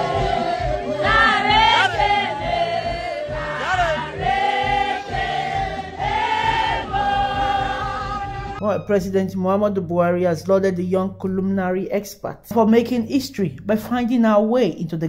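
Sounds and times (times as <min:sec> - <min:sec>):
voices singing over a beat: 0:00.0 - 0:08.6.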